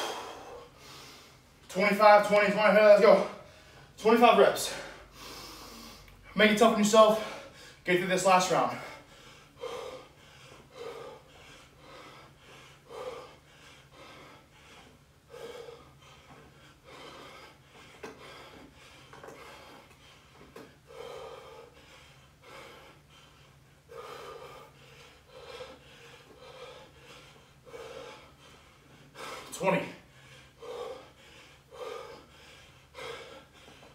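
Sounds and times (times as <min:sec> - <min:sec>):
man breathing hard: 0:00.0 - 0:33.9.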